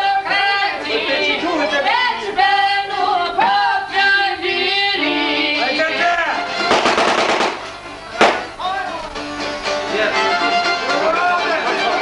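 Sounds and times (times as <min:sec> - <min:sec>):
accordion: 0:00.0 - 0:12.0
violin: 0:07.8 - 0:12.0.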